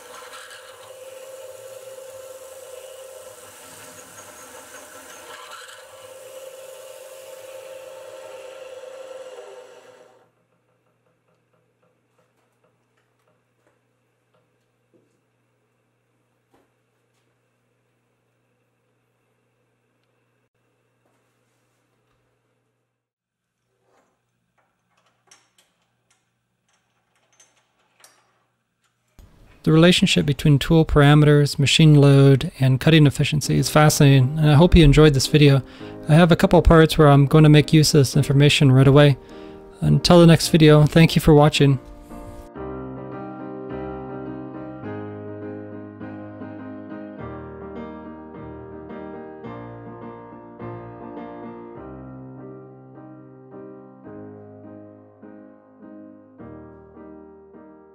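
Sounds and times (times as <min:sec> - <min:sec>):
milling machine drilling metal: 0:00.0 - 0:10.2.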